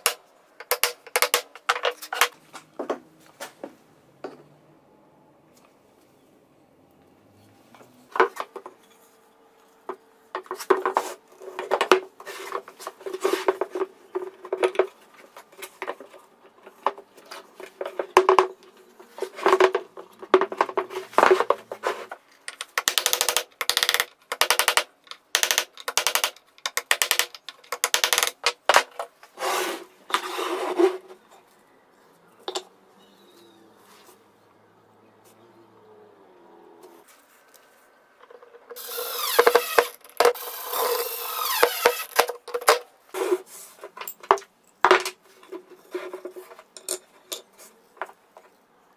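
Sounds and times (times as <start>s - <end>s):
metal parts clinking and knocking: 22.4s - 29.0s, 38.2s - 42.9s, 43.8s - 48.1s.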